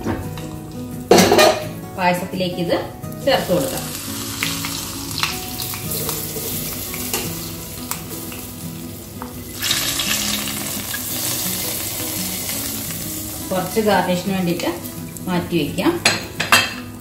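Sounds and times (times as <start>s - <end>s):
hot ghee sizzling in liquid: 3.0s - 15.8s.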